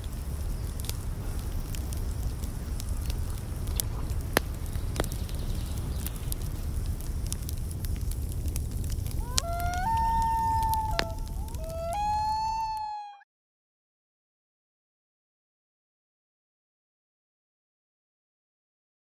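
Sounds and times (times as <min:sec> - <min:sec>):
wood fire crackling: 0:00.0 - 0:13.1
wailing tone: 0:09.2 - 0:13.2.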